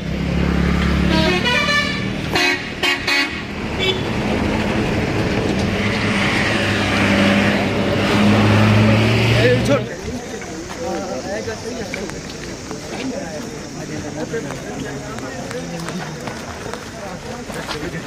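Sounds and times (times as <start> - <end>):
horns blowing: 1.0 - 4.2.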